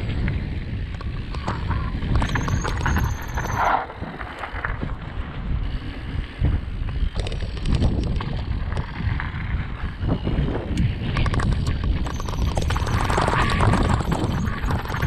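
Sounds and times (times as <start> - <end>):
bike rattling over ground: 0.0 - 15.0
wind buffeting microphone: 0.0 - 15.0.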